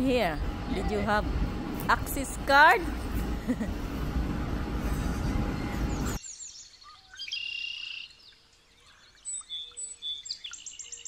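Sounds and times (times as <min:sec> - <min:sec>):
loud rushing noise: 0:00.0 - 0:06.2
songbirds chirping: 0:04.9 - 0:11.0.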